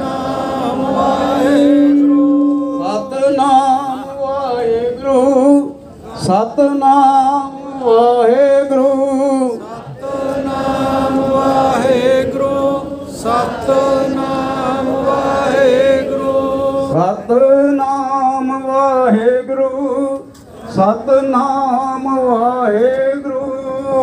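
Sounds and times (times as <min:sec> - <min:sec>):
voices chanting held notes: 0:00.0 - 0:08.4, 0:09.5 - 0:17.0.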